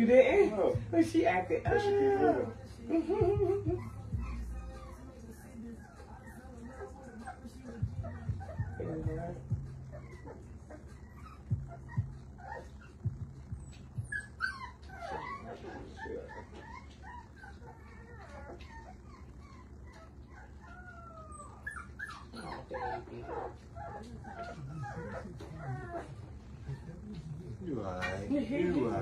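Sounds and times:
puppies whimpering and yipping: 0.1 - 29.0.

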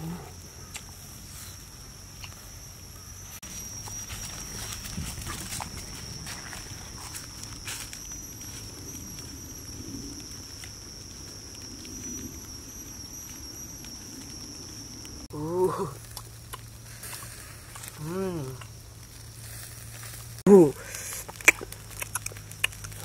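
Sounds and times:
high-pitched insect drone: 0.0 - 23.0
footsteps on dry leaves: 3.3 - 9.8
person calling out: 15.3 - 16.0, 18.0 - 18.6, 20.5 - 20.9.

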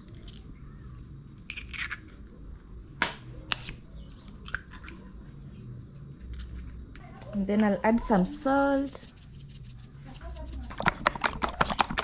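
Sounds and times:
shell crackling and scraping: 1.4 - 2.3.

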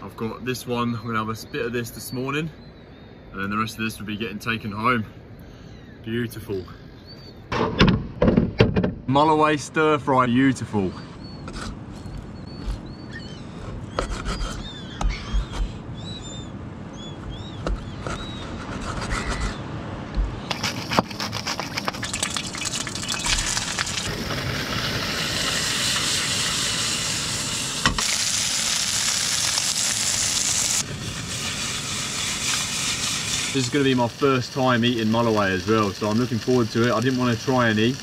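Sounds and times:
high bird chirps: 10.9 - 18.5, 22.1 - 24.0
fish sizzling in a pan: 21.7 - 38.0.

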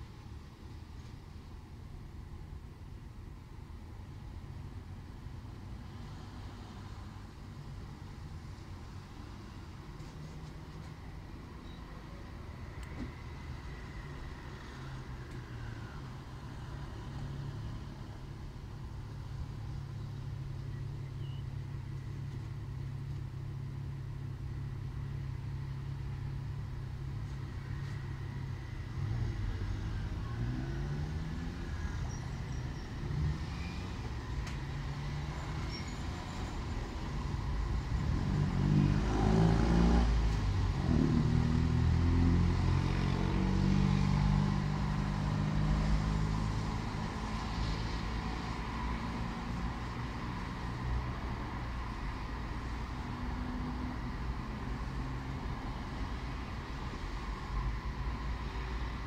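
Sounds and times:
traffic engine hum: 0.0 - 59.0
vehicle speeding up: 37.9 - 50.0.

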